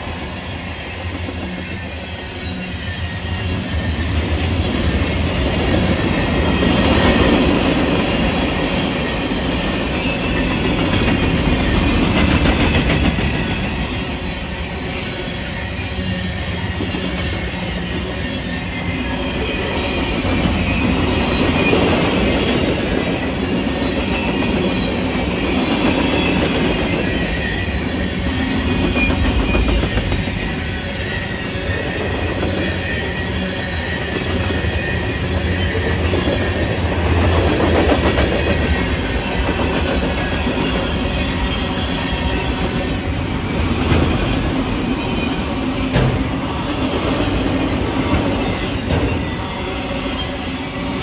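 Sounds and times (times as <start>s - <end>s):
train wheels clacking on rail: 0.0s - 51.0s
high-pitched wheel squeals: 13.4s - 37.0s.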